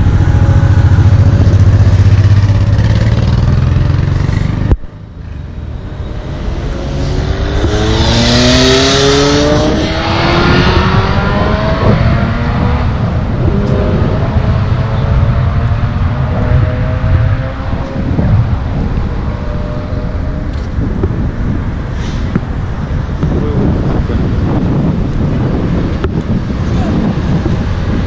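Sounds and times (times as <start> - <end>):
low traffic drone: 0.0 - 28.0
vehicle accelerating past: 5.7 - 20.5.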